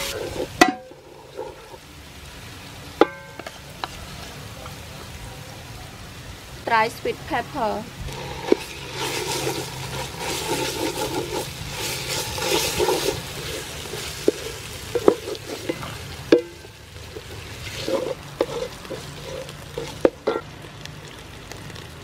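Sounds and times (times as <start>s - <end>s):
paste sizzling in oil: 0.0s - 1.8s, 7.5s - 22.0s
wooden ladle scraping pot: 0.0s - 1.8s, 8.0s - 20.5s.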